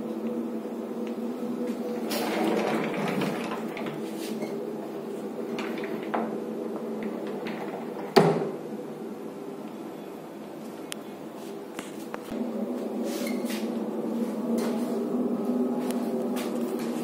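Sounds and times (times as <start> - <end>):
steady hum: 0.0 - 17.0
door banging: 5.4 - 8.6.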